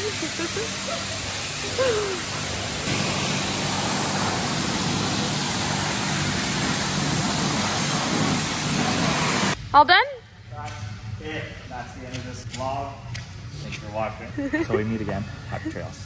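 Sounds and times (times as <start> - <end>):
low pump hum: 0.0 - 9.6
pressure washer hissing spray: 0.0 - 9.6.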